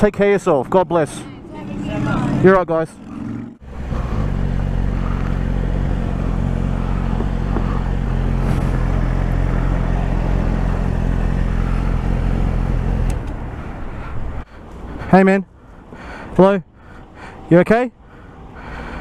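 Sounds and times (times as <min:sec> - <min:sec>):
motorcycle engine idling: 0:03.0 - 0:13.5.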